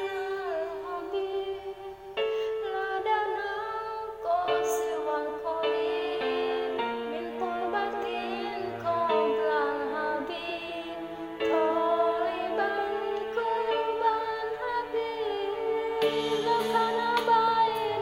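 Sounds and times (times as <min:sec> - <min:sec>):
woman singing into microphone: 0:00.0 - 0:18.0
backing music: 0:04.6 - 0:18.0.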